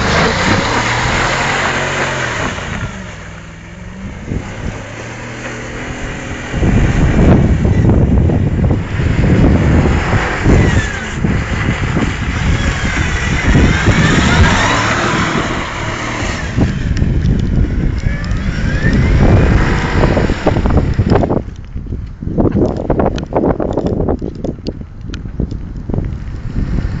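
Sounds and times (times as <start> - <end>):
suv engine revving: 0.0 - 21.5.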